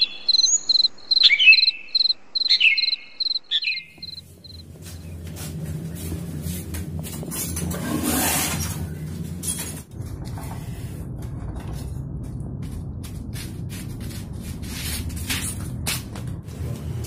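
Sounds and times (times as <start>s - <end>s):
steady low rumble: 3.1s - 17.0s.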